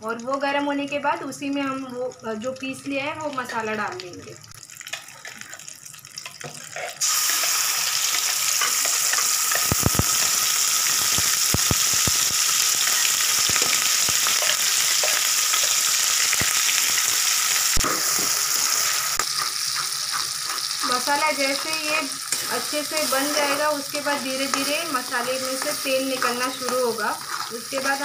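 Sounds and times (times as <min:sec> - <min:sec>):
paste sizzling in hot oil: 0:04.5 - 0:28.0.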